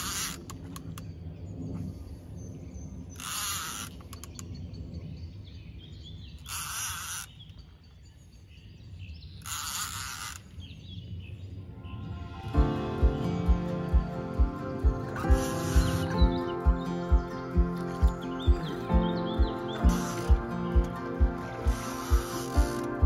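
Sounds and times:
spinning reel cranking: 0.0s - 0.5s, 3.2s - 4.0s, 6.5s - 7.3s, 9.4s - 10.6s, 19.9s - 20.4s, 21.6s - 23.0s
faint bird chirps: 15.1s - 22.8s.

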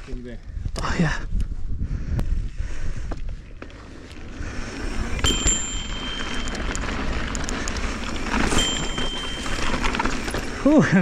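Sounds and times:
wind rushing over microphone: 0.0s - 10.6s
bike tyres rolling: 2.3s - 11.0s
small rattles and clicks: 5.2s - 10.6s.

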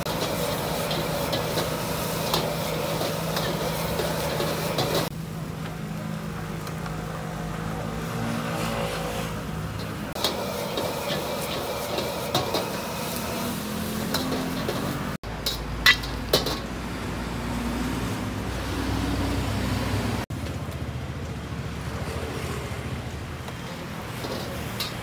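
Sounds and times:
metal ladle scraping a wok: 0.0s - 5.1s, 8.6s - 16.8s, 23.7s - 25.0s
gas burner roaring: 0.0s - 25.0s.

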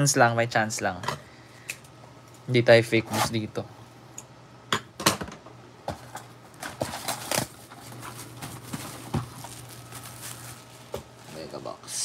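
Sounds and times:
cardboard box taps and crackles: 6.6s - 11.2s.

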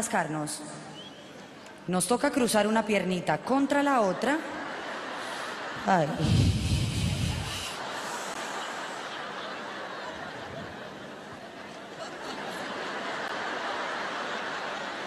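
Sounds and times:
large audience laughing: 3.9s - 15.0s.

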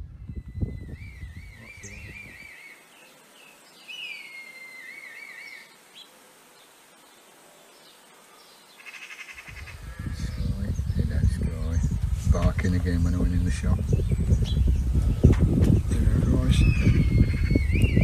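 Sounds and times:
kites whistled calls: 0.4s - 2.8s, 16.0s - 18.0s.

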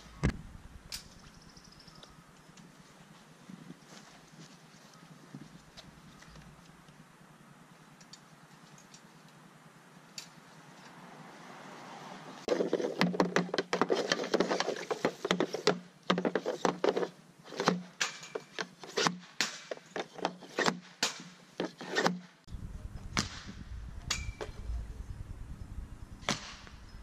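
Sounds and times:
low rumble: 0.0s - 1.2s, 22.5s - 27.0s
puck hitting net and backstop: 12.5s - 22.3s.

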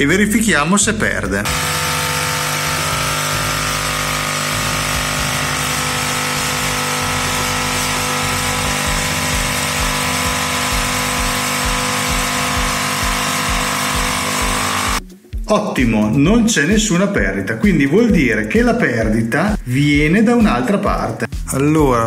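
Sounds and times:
espresso machine pump running: 1.5s - 15.0s.

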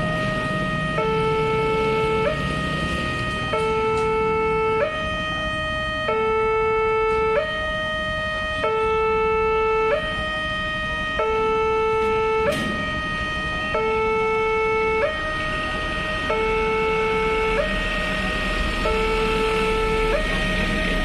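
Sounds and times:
level crossing two-tone alarm: 0.0s - 21.0s.

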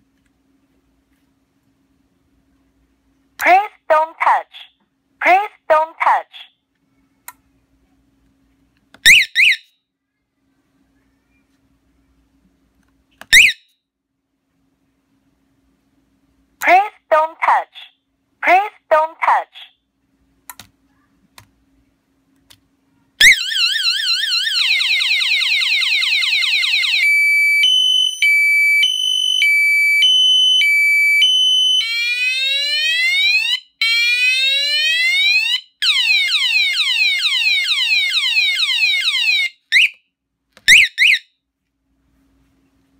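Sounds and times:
motorcycle alarm siren: 9.1s - 9.7s, 13.3s - 13.7s, 23.2s - 40.0s, 40.7s - 41.3s
short alarm chirps: 13.3s - 13.7s.

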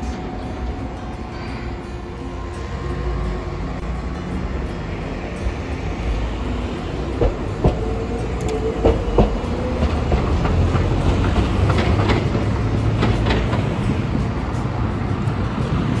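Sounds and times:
streetcar rumble: 0.0s - 16.0s
wheels clacking over rail joints: 4.1s - 16.0s.

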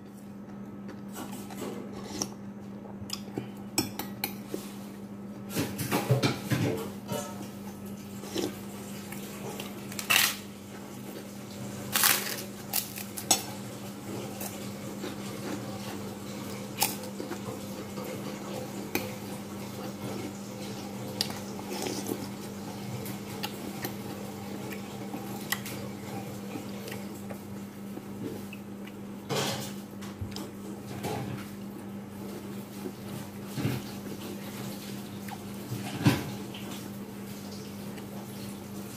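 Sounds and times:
steady low hum: 0.0s - 34.2s
cracker crunching: 8.3s - 10.5s, 11.6s - 15.8s.

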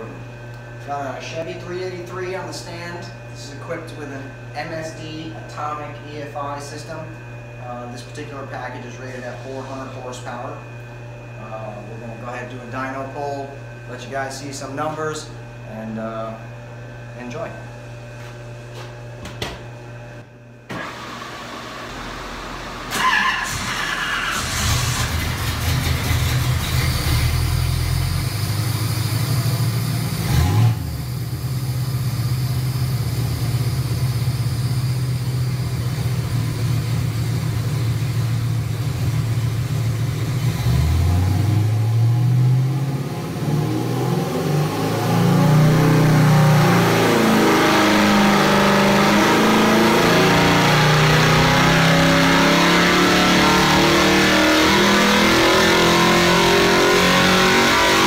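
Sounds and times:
engine revving on dyno: 20.7s - 58.0s.

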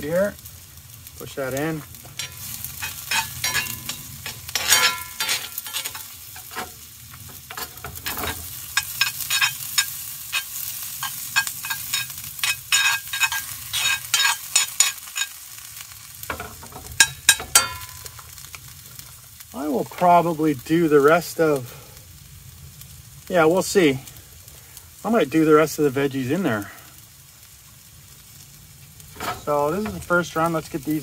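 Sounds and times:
vegetables sizzling in oil: 0.0s - 31.0s
spoon scraping a skillet: 1.5s - 18.5s, 29.0s - 30.5s.

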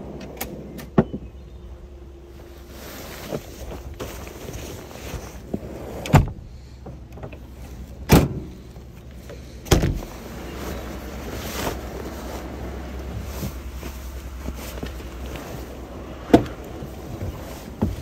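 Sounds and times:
pickup tailgate slams: 8.0s - 8.6s, 9.7s - 10.1s.

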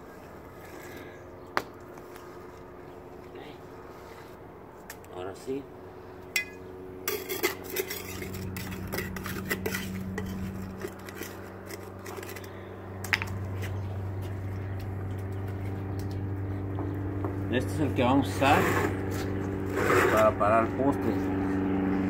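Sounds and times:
steady low hum: 0.0s - 22.0s
metal tool scraping concrete: 6.4s - 12.7s, 18.2s - 20.4s.

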